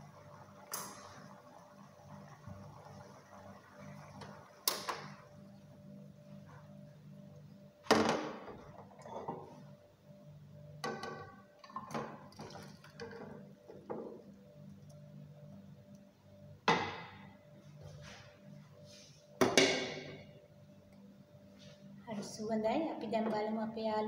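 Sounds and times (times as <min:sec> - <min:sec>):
low steady hum: 0:00.0 - 0:24.0
pan knocking on bowl: 0:19.4 - 0:20.2.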